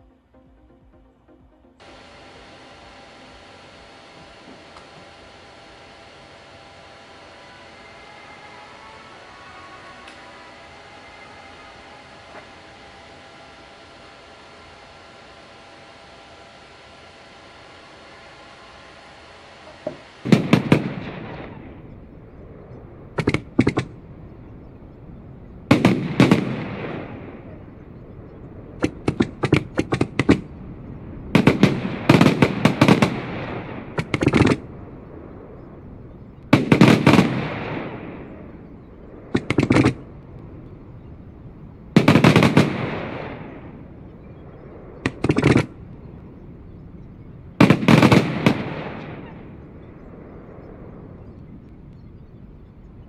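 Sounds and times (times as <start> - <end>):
fireworks cracking and banging: 19.7 - 21.8, 25.7 - 27.1, 31.4 - 34.7, 36.5 - 38.3, 42.0 - 43.6, 47.6 - 49.5.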